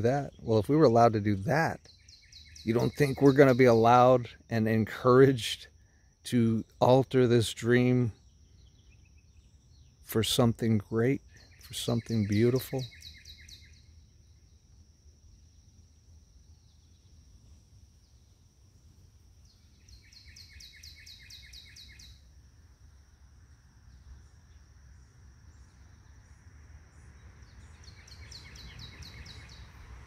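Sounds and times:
songbird trilling: 0.0s - 4.8s, 7.6s - 14.1s, 19.4s - 22.3s, 27.0s - 29.8s.

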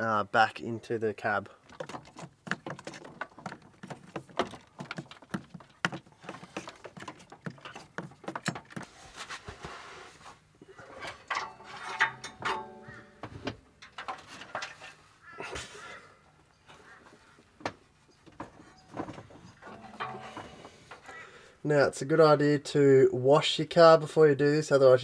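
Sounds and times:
cable rustling and clicking: 1.6s - 8.9s.

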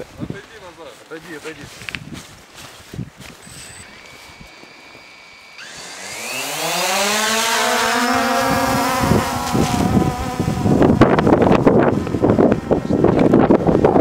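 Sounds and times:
wind buffeting microphone: 0.0s - 4.6s, 6.9s - 14.0s
drone propellers whining: 3.4s - 14.0s.

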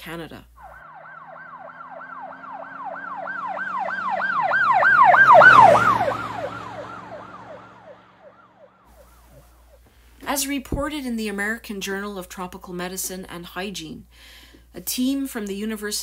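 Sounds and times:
emergency siren yelping: 0.6s - 9.8s.

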